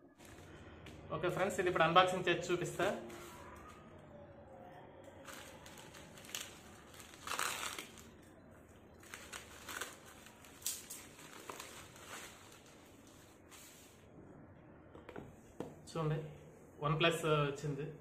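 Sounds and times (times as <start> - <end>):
plastic mailer bag crinkling: 5.2 - 8.3, 8.9 - 13.4.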